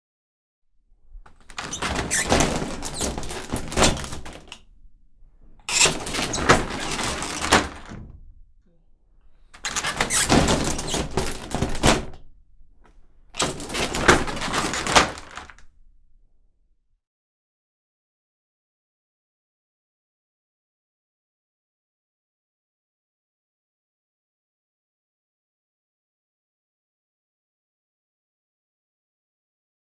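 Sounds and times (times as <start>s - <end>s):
sliding door scraping and rolling: 1.4s - 4.5s, 5.7s - 8.0s, 13.4s - 15.5s
sliding door on track: 5.7s - 8.0s.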